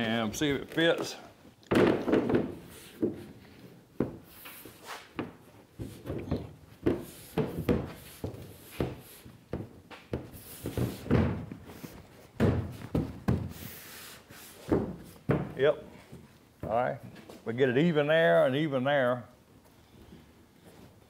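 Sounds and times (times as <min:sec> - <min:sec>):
fiberglass panel knocks and thuds: 0:01.7 - 0:03.2, 0:05.2 - 0:11.7, 0:12.3 - 0:13.6, 0:14.7 - 0:15.6.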